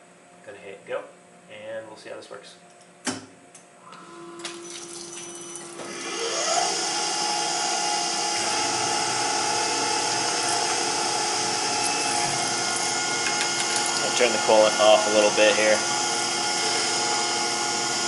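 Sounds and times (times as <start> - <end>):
spindle whine spinning up: 4.0 - 18.0.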